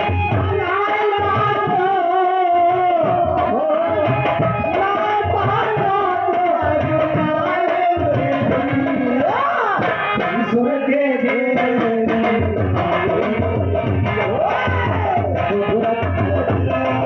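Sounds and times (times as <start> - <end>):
hand drum rhythm: 0.0 - 17.0.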